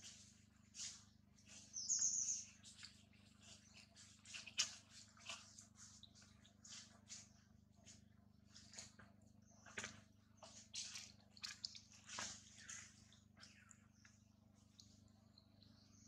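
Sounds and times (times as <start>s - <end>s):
monkey chewing and rustling: 0.0s - 9.2s.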